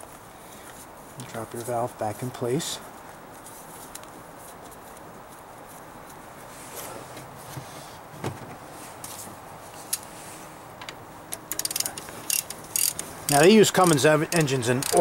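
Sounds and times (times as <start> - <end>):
sharp metallic click: 13.8 - 15.0.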